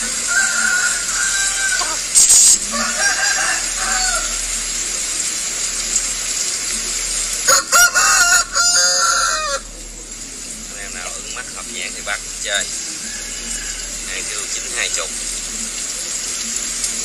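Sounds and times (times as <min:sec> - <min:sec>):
rooster crowing: 0:00.0 - 0:05.0, 0:07.4 - 0:09.7, 0:12.7 - 0:14.5.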